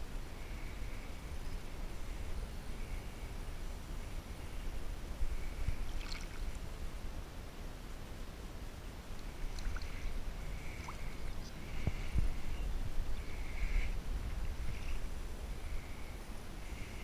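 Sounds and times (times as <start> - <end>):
wind rumble on microphone: 0.0 - 17.0
water sloshing: 5.8 - 6.6, 9.2 - 11.5.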